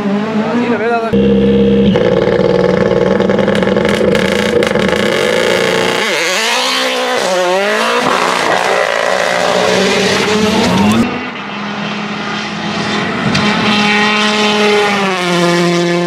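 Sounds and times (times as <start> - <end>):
rally car engine revving: 0.0 - 16.0
engine exhaust pops: 1.2 - 6.0.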